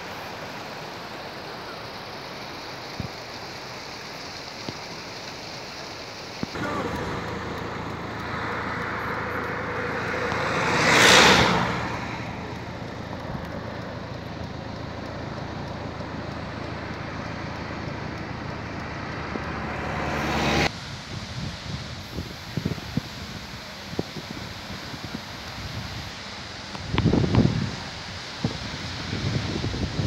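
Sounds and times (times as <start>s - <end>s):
road and outdoor noise: 0.0s - 30.0s
car passing by: 6.5s - 22.8s.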